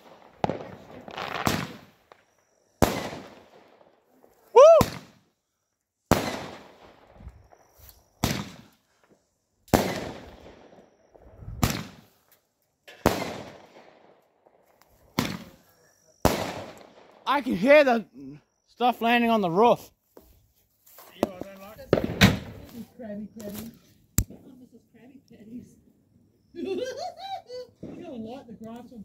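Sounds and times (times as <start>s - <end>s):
fireworks shots: 0.0s - 5.3s, 6.1s - 8.8s, 9.6s - 12.2s, 12.8s - 17.6s, 21.1s - 22.9s
firework whistle: 4.4s - 5.2s.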